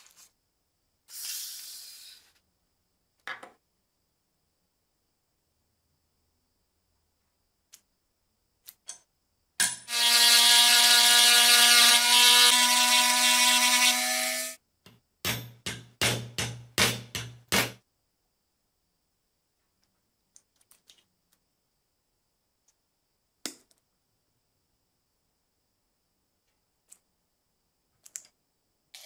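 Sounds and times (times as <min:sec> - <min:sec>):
rotary tool grinding metal: 0:09.9 - 0:14.6.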